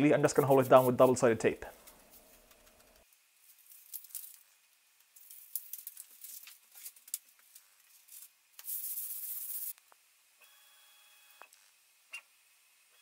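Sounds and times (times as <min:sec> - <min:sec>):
hands crackling tape: 0:01.8 - 0:09.8.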